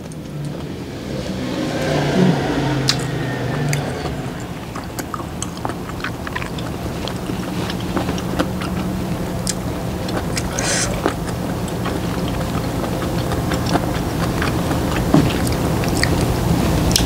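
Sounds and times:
person chewing wetly: 2.8 - 17.0.

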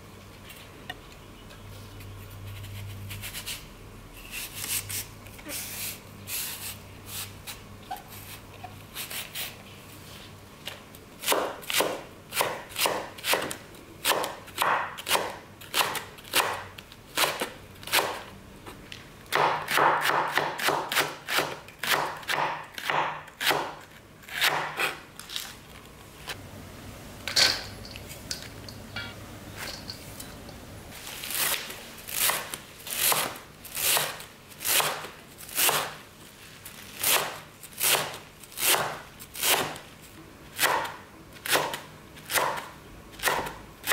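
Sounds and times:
knife chopping on wooden board: 11.2 - 16.6, 19.3 - 23.8, 24.4 - 25.0, 40.6 - 42.6.

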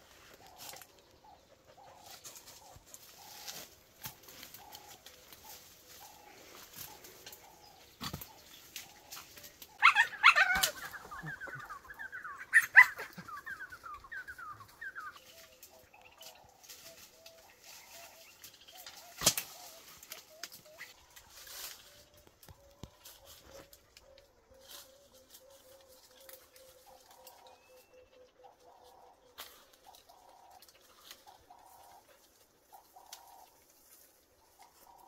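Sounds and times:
dogs yapping: 9.7 - 14.6
dogs barking: 9.8 - 13.7
sharp crack: 19.1 - 19.6.

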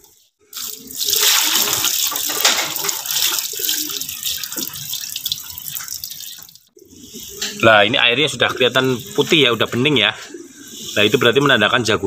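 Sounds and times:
hose water splashing into tub: 0.5 - 6.7.

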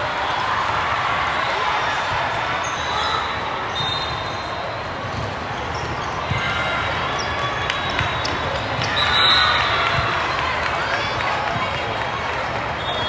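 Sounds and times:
babble of many voices: 0.0 - 13.0
volleyballs bouncing: 4.9 - 9.0.

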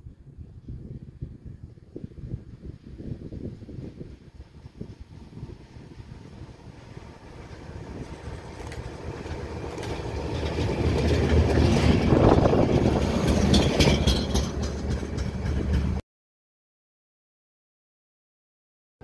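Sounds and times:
rail vehicle passing: 0.0 - 16.0
wheels clicking over rail joints: 7.6 - 16.0.

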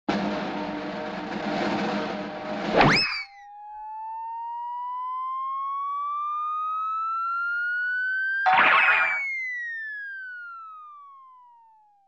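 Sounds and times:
rising whistle-like tone: 8.5 - 10.8.

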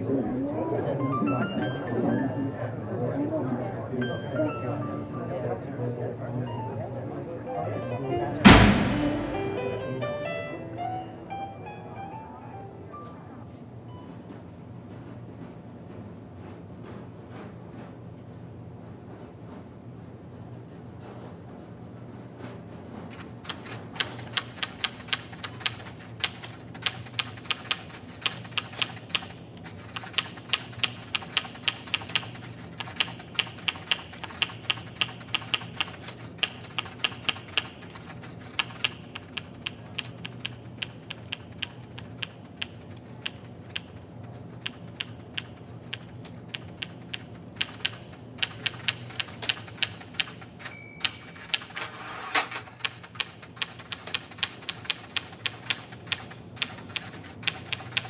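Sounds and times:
typewriter keys clacking: 23.1 - 58.0
short ringing tone: 50.7 - 51.4.

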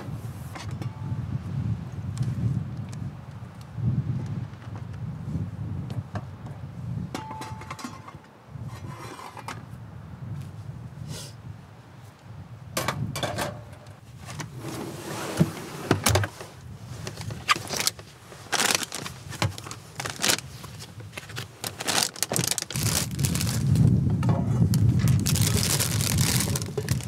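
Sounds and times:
rummaging in fridge drawer: 14.2 - 20.4, 21.2 - 23.6.

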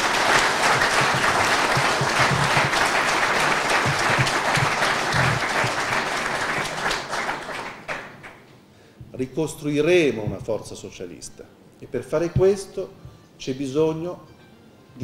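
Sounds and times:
audience clapping: 0.0 - 8.5.

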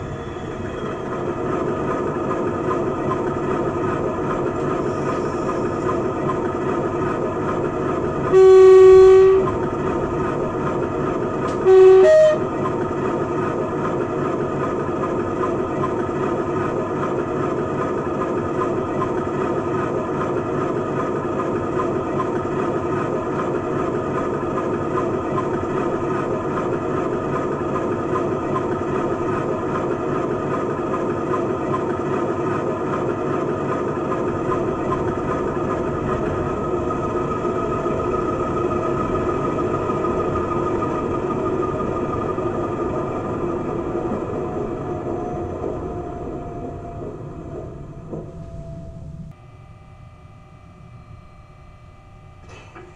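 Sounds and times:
two-tone horn: 8.3 - 9.6, 11.5 - 12.5.

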